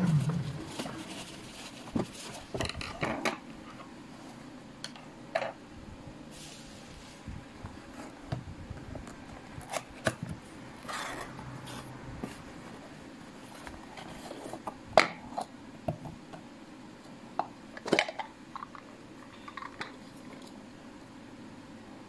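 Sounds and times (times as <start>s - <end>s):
cardboard rustling: 0.0s - 2.8s.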